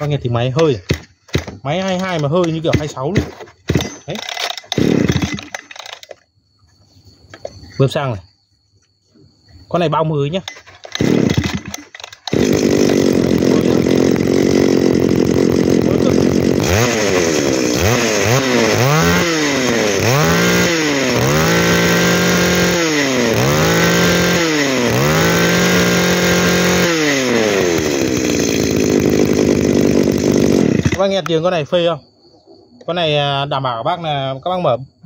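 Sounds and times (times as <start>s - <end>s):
brush cutter engine revving: 0.0s - 6.1s, 10.4s - 31.4s.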